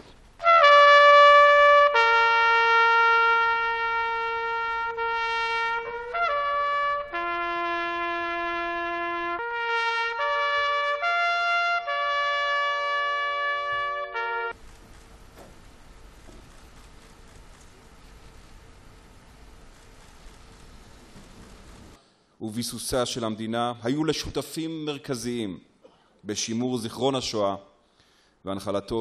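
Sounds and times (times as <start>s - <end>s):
trumpet playing long held notes: 0.4s - 14.6s.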